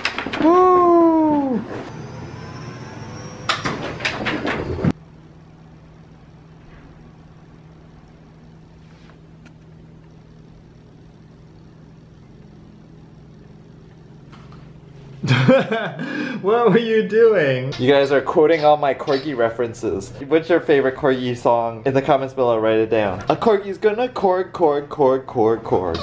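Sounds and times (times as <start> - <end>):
low room hum: 0.0 - 26.0.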